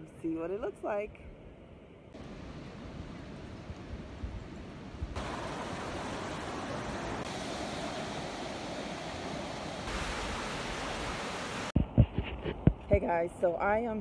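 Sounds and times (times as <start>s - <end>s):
surf washing onto beach: 2.2s - 11.8s
wind on microphone: 2.2s - 13.0s.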